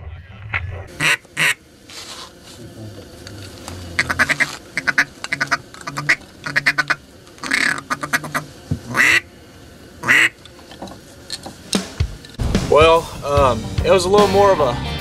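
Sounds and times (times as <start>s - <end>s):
duck call quacks: 1.0s - 1.6s, 4.0s - 9.2s, 10.0s - 10.4s.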